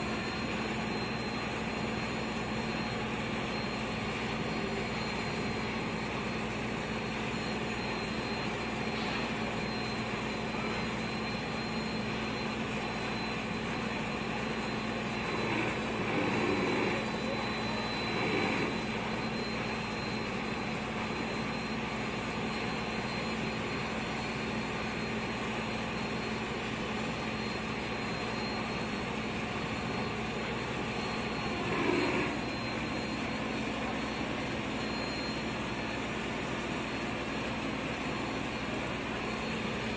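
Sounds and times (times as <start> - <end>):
faint high whine: 7.3 - 20.6
machinery drone: 8.2 - 19.8, 29.8 - 35.9.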